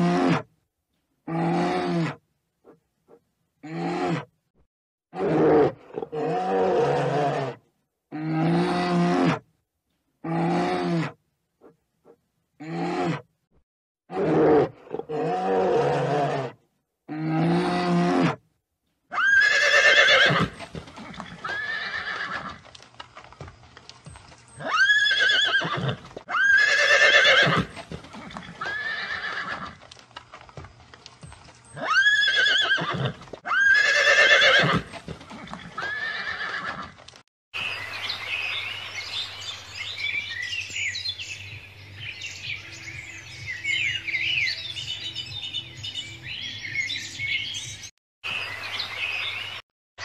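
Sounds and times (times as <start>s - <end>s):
horses whinnying: 5.2s - 9.4s, 19.1s - 22.7s, 24.5s - 30.0s, 31.7s - 37.1s.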